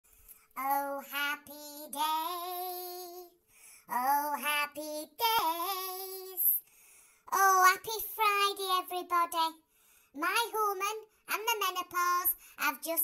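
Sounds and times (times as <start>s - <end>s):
woman singing in comic voice: 0.6s - 3.3s, 10.2s - 13.0s.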